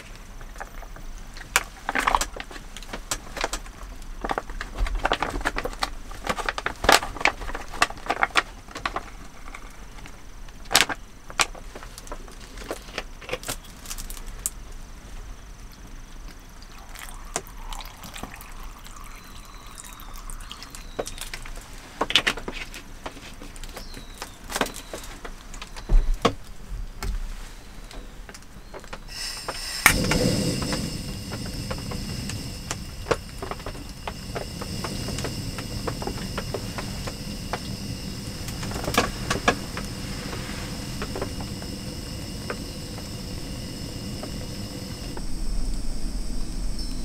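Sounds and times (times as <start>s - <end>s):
water pouring from a bottle: 16.5s - 21.8s.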